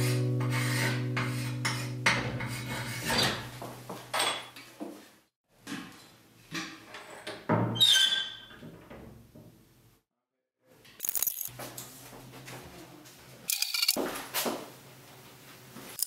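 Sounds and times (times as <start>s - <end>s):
acoustic guitar chord ringing: 0.0s - 2.7s.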